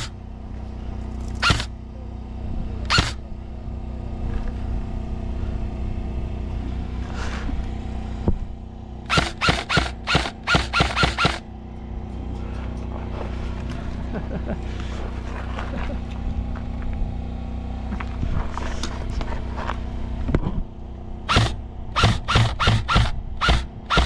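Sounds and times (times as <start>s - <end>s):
steady low hum: 0.0s - 24.0s
airsoft rifle shots: 1.4s - 1.7s, 2.9s - 3.2s, 9.1s - 11.4s, 21.3s - 24.0s.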